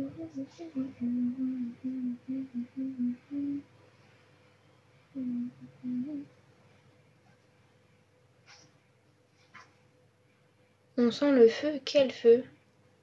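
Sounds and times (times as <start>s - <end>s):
person humming a tune: 0.0s - 3.7s, 5.1s - 6.4s.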